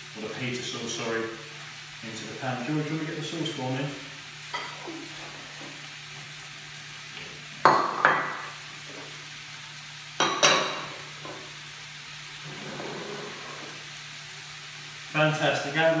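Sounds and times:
food sizzling in frying pan: 0.0s - 16.0s
loud hits in pan: 7.6s - 8.6s, 10.2s - 11.0s.

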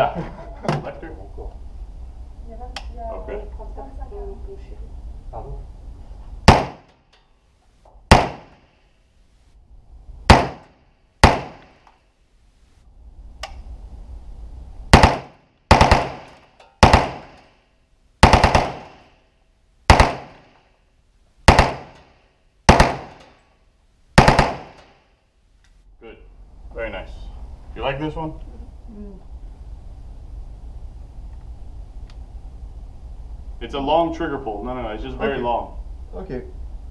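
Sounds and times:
submachine gun automatic bursts: 15.0s - 17.4s, 18.2s - 19.0s, 24.2s - 24.8s.

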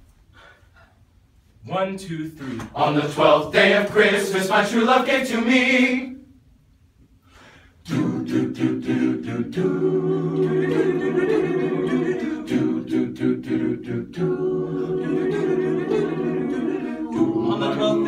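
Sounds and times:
male choir singing a cappella: 2.5s - 6.3s, 7.8s - 18.0s.

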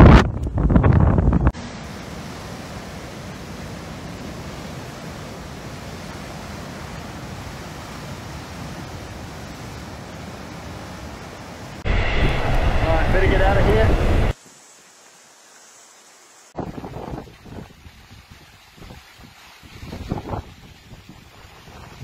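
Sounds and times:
heavy surf roar: 1.5s - 14.4s.

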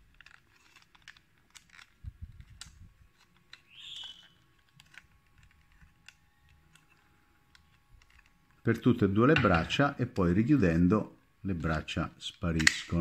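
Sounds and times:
toy robot joints clicking: 0.0s - 8.8s.

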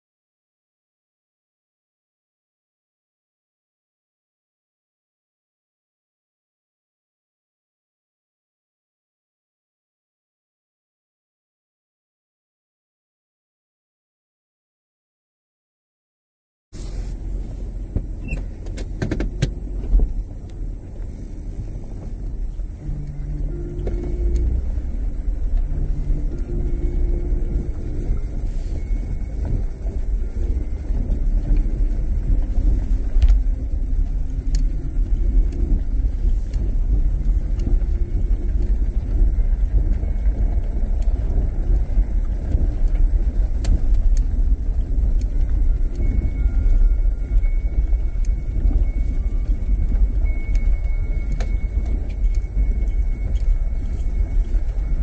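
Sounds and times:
car driving over gravel: 16.8s - 55.0s
faint engine hum: 16.8s - 55.0s.

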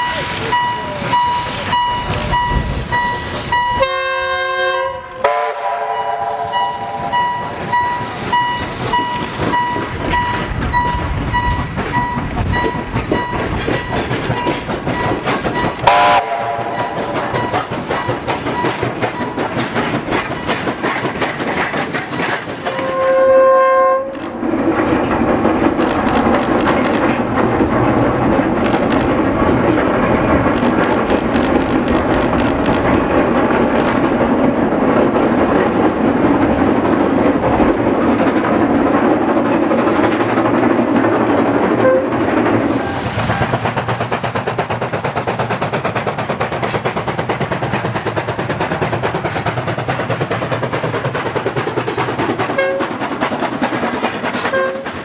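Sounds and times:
level crossing alarm beeping: 0.0s - 4.2s, 5.9s - 19.5s
steam whistle blowing: 0.0s - 9.9s, 15.8s - 17.0s, 22.7s - 24.1s, 54.5s - 54.9s
steam engine exhaust beats: 0.0s - 55.0s
train running noise: 0.0s - 55.0s.

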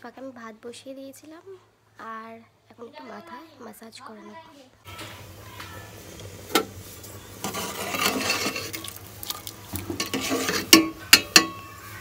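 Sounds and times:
metal spoon scraping a pot: 6.4s - 11.8s
spoon clinking on pot: 9.9s - 11.7s.

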